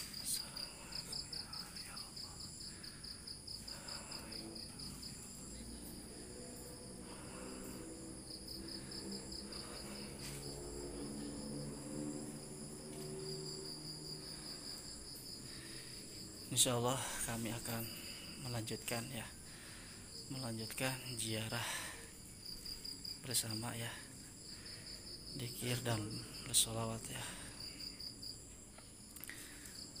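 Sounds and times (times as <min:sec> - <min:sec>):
crickets chirping: 0:00.0 - 0:30.0
high-pitched insect buzz: 0:03.4 - 0:16.4.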